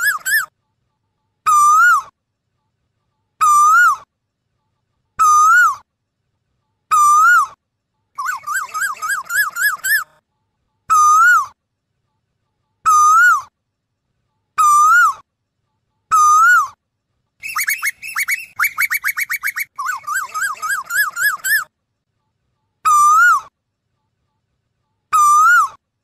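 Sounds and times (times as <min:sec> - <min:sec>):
koel calling: 0:17.4 - 0:21.7.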